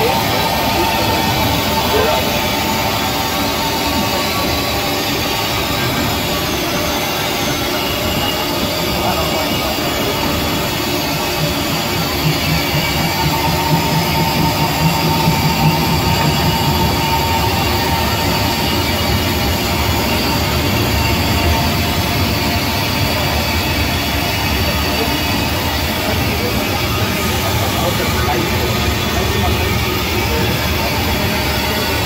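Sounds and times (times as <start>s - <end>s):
steam locomotive running: 0.0s - 32.0s.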